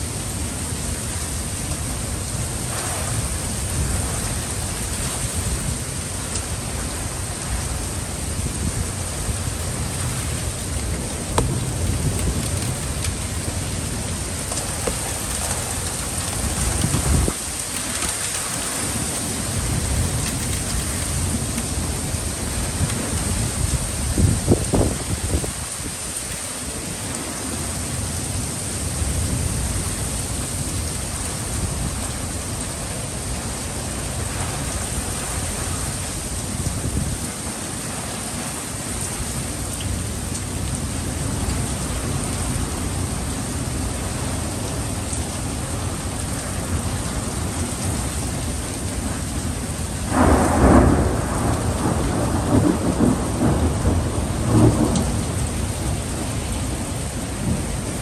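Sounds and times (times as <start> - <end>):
heavy rain: 0.0 - 58.0
thunder clap rumbling: 8.4 - 25.6, 50.0 - 57.8.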